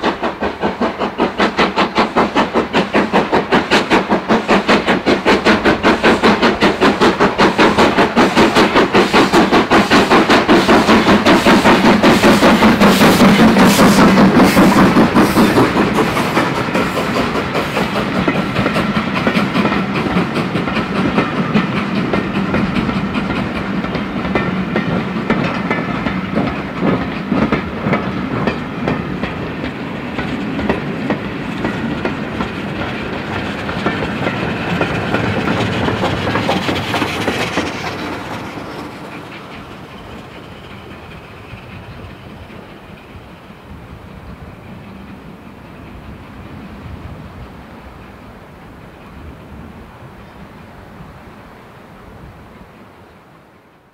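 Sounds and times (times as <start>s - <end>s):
steam locomotive exhaust beats: 0.0s - 50.4s
train wheels clickety-clack on rails: 0.0s - 51.3s.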